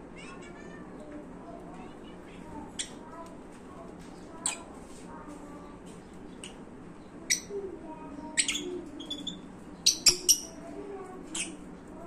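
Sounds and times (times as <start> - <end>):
lovebirds chirping: 5.5 - 11.7.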